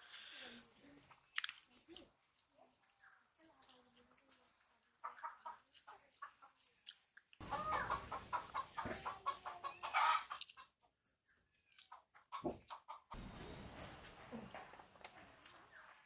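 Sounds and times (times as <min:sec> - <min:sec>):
chicken clucking: 0:04.6 - 0:06.8, 0:07.4 - 0:11.1, 0:11.7 - 0:13.2.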